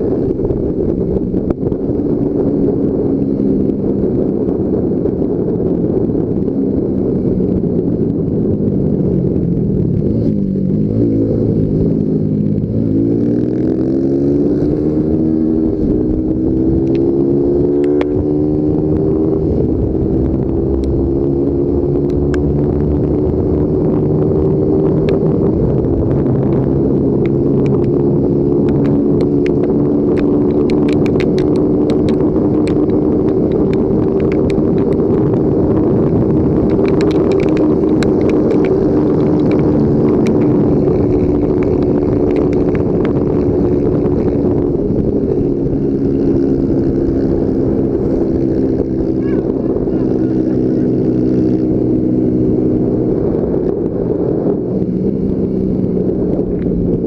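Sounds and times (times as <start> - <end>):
motorcycle engine accelerating: 0.0 - 57.0
wind rush: 0.0 - 57.0
sharp clicks: 28.7 - 35.0, 36.6 - 40.5.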